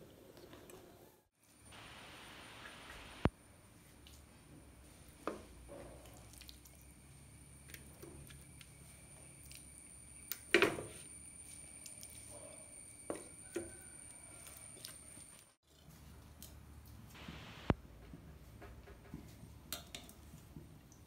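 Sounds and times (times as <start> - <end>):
wet chicken pieces squishing: 6.0 - 7.0.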